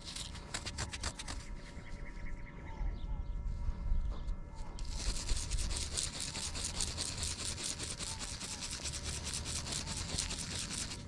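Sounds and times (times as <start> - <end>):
scratchy scrubbing of coin: 4.8 - 11.0.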